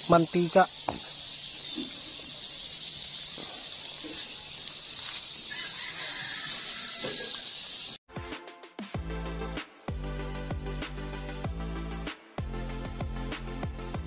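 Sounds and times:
fish sizzling on a grill: 0.0s - 8.0s
electronic music: 8.1s - 14.0s.

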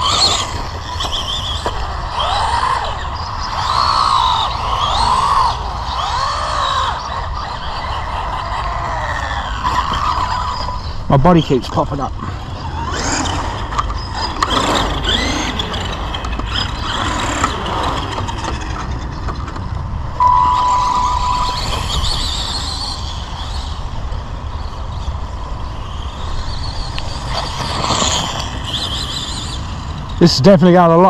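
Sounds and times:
toy car electric motors whining: 0.0s - 30.4s
steady high beep: 20.2s - 21.8s.

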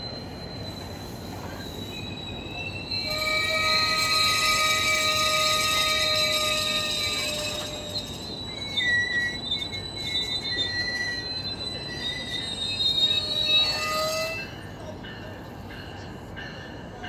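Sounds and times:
rumble of moving train: 0.0s - 17.0s
train wheels squealing: 0.0s - 17.0s.

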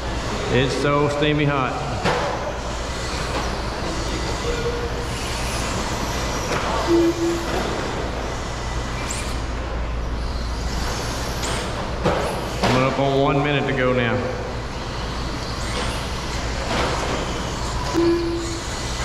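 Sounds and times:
faint high whines of rc trucks: 2.4s - 12.6s, 14.7s - 19.0s.

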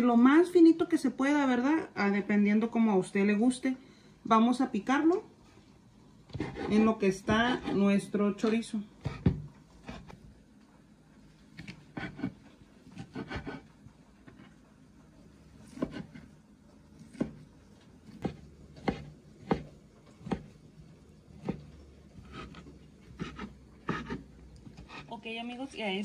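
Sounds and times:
knife chopping on wooden board: 11.6s - 14.5s, 15.6s - 16.3s, 17.0s - 20.6s, 21.3s - 25.1s.

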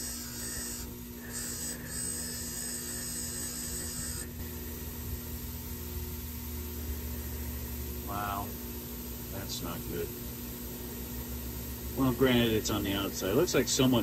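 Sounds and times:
metal hissing against wire wheel: 0.0s - 5.5s
bench grinder motor humming: 0.0s - 14.0s.

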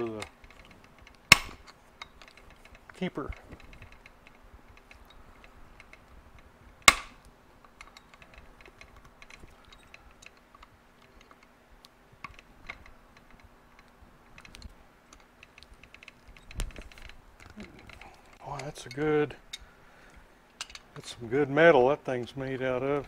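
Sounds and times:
small metal parts clicking: 0.0s - 21.0s
sharp metallic snap: 1.0s - 2.2s, 6.8s - 8.0s.

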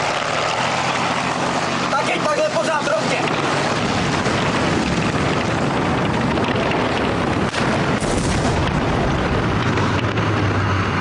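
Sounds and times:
tank engine: 0.0s - 11.0s
sharp crack: 4.6s - 10.3s
blast: 7.1s - 10.6s
gunfire: 7.4s - 9.0s.

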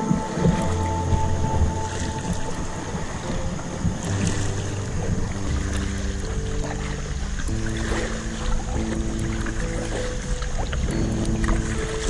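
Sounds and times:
music with sustained notes: 0.0s - 12.0s
water sloshing and splashing: 0.0s - 12.0s
wind on microphone: 0.0s - 12.0s.

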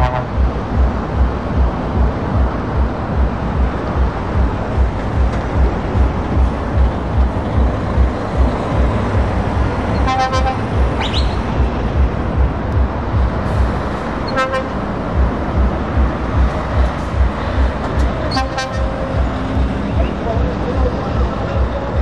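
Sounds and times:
truck horn: 0.0s - 0.4s, 9.9s - 11.4s, 14.2s - 14.9s, 18.2s - 19.3s
diesel truck engines rumbling: 0.0s - 22.0s.

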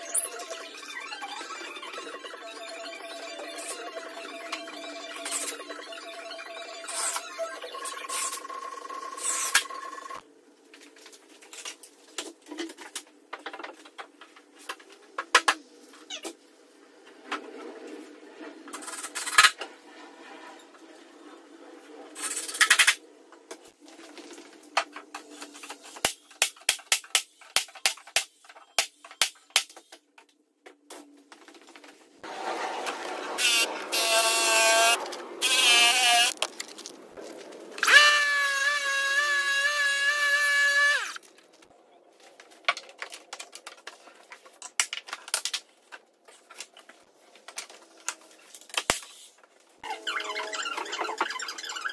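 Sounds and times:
saw cutting wood whining: 32.3s - 36.4s, 37.8s - 41.2s.

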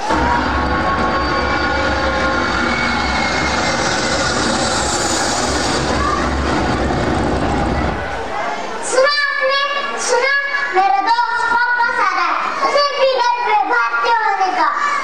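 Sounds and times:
jet aircraft roar: 0.0s - 8.3s.

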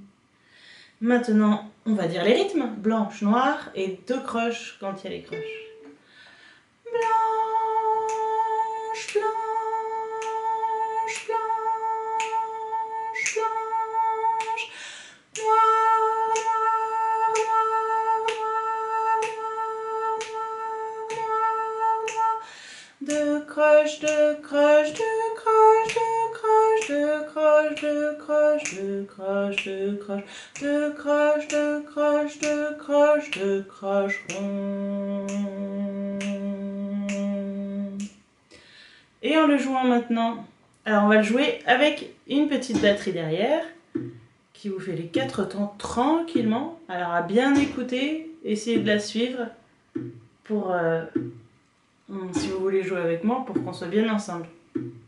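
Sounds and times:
woman singing: 1.2s - 6.0s, 6.9s - 38.2s, 41.1s - 43.6s, 44.6s - 49.6s, 52.2s - 54.2s
finger snaps: 11.1s - 11.4s, 12.2s - 12.4s, 13.2s - 13.5s, 14.4s - 15.6s, 17.3s - 17.6s, 28.6s - 28.8s, 34.1s - 34.5s, 36.2s - 38.7s.

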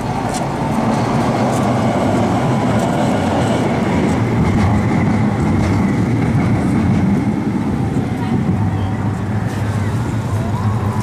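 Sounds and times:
heavy traffic rumble: 0.0s - 11.0s.

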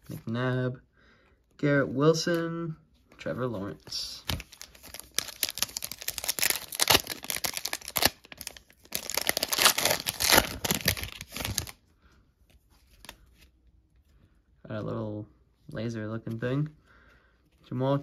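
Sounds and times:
foil wrapper tearing and crinkling: 4.4s - 11.8s.

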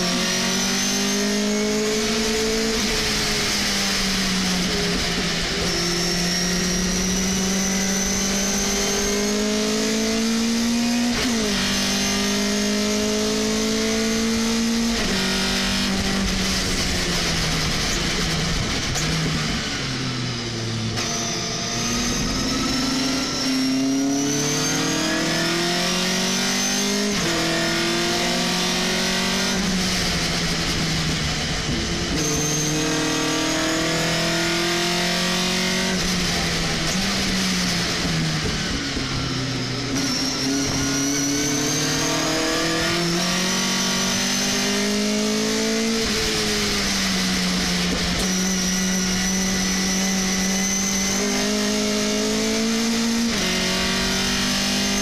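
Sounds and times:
high whine: 13.5s - 25.6s.

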